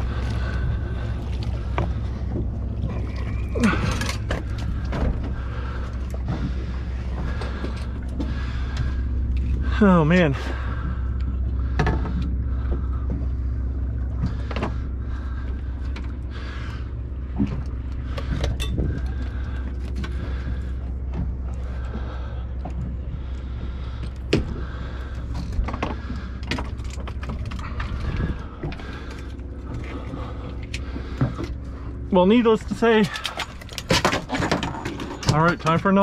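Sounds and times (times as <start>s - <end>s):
steady low rumble: 0.0s - 36.0s
fishing gear clattering on deck: 1.7s - 5.4s, 6.1s - 8.8s, 17.4s - 22.1s, 24.0s - 31.6s, 32.5s - 36.0s.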